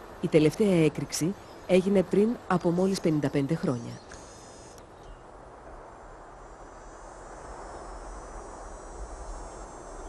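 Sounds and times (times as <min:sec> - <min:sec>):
insects chirring: 0:02.6 - 0:05.2, 0:05.9 - 0:10.0.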